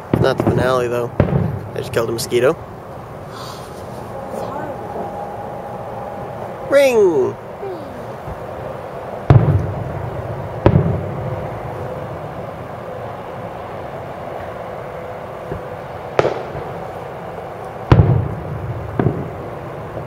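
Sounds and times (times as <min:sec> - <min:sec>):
fireworks booming: 0:00.0 - 0:12.4, 0:15.5 - 0:16.9, 0:17.9 - 0:19.7
low rolling rumble: 0:00.0 - 0:16.7.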